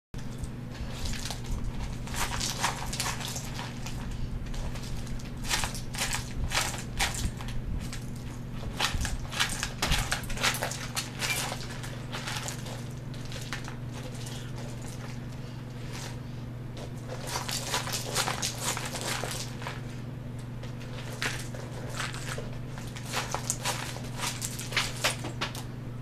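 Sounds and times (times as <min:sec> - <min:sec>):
nuts rattling in plastic bowl: 0:00.9 - 0:15.2.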